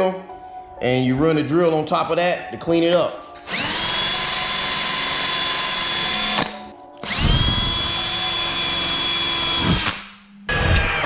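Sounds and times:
drill sanding metal bar: 3.5s - 10.0s.

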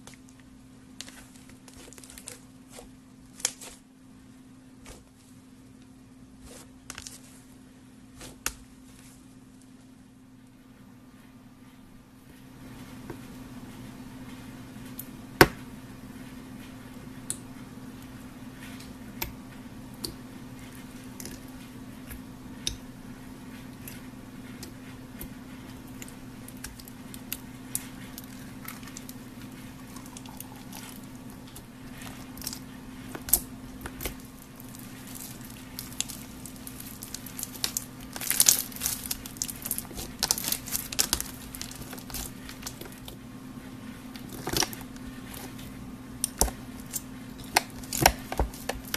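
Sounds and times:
steady low hum: 0.0s - 48.9s
slime squishing with clicks: 21.2s - 22.9s, 23.7s - 43.2s, 44.1s - 48.9s.

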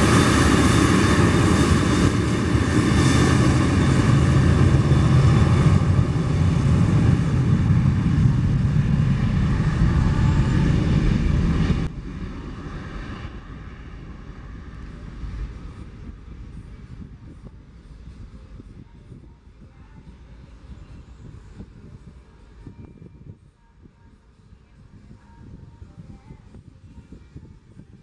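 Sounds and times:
jet engine roar: 0.0s - 18.6s
distant jet rumble: 0.0s - 28.0s.

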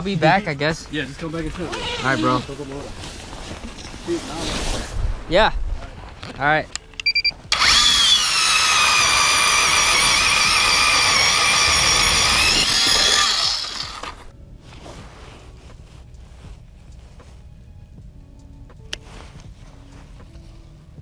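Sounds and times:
electric ice auger motor whine: 7.5s - 14.3s.

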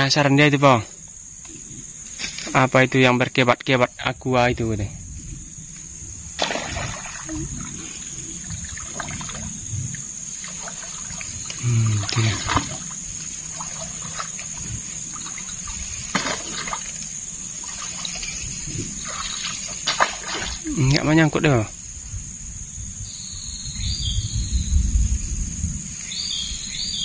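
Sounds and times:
insects droning: 0.0s - 27.0s
water splashing and sloshing: 5.2s - 21.2s.

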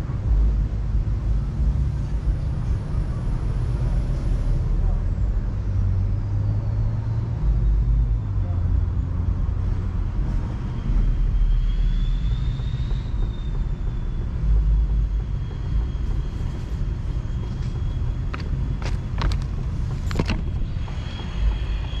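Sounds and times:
steady low rumble: 13.0s - 22.0s.

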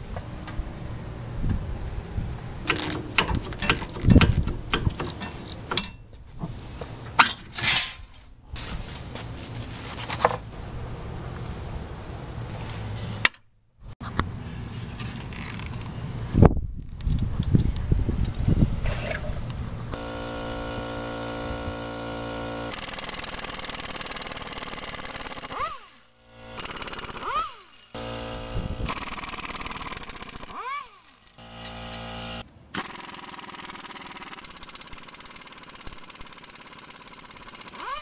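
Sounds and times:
air wrench running: 2.7s - 6.0s, 19.9s - 38.0s.

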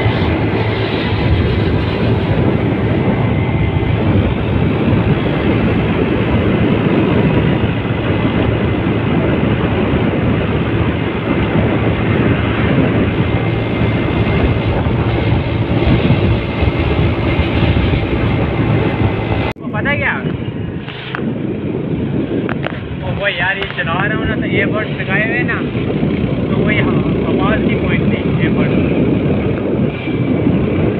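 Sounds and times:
motorcycle engine hum: 0.0s - 30.9s
road noise: 0.0s - 30.9s
rushing wind: 0.0s - 30.9s.

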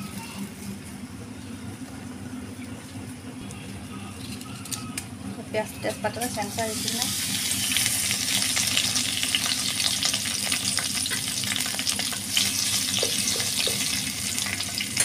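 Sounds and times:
leaves sizzling in hot oil: 6.1s - 15.0s.

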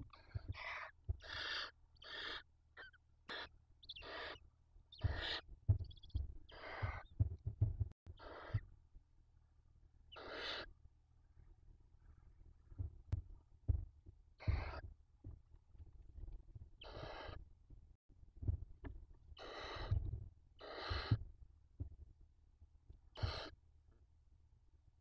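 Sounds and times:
soft low thumps in nest: 0.1s - 1.4s, 5.0s - 8.7s, 12.7s - 15.4s, 19.7s - 20.3s, 20.9s - 22.0s
owl chicks hissing: 0.1s - 5.4s, 6.5s - 7.1s, 8.2s - 8.7s, 10.1s - 10.7s, 14.4s - 14.8s, 16.8s - 17.4s, 19.4s - 20.0s, 20.6s - 21.2s, 23.2s - 23.6s.

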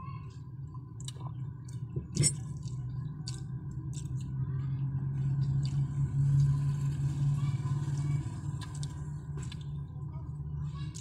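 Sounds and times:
steady low hum: 0.0s - 11.0s
chewing and lip smacks: 1.0s - 4.4s.

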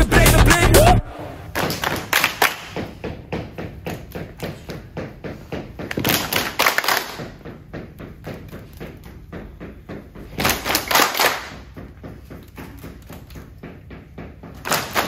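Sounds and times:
girls clapping in rhythm: 0.0s - 3.0s, 5.9s - 7.5s, 10.4s - 11.8s, 14.6s - 15.0s.

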